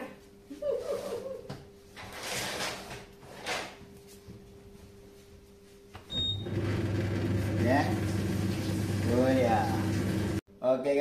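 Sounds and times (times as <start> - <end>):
short beep: 6.1 - 6.5
tumble dryer humming: 6.4 - 10.4.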